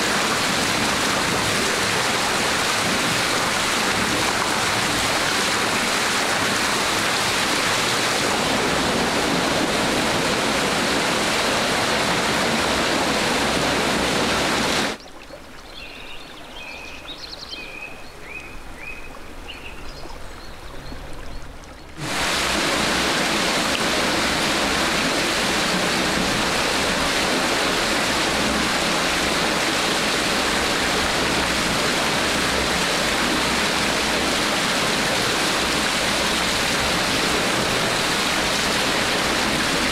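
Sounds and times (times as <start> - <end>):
water pouring and churning: 0.0 - 16.5, 20.0 - 39.9
quiet creek: 14.9 - 22.0.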